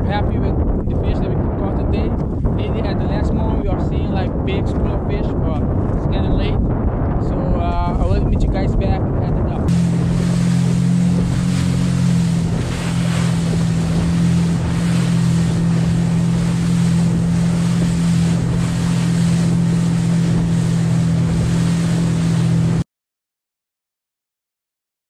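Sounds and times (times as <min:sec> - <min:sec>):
wind buffeting microphone: 0:00.0 - 0:22.8
water rushing past hull: 0:09.1 - 0:22.8
motorboat engine droning: 0:09.3 - 0:22.8.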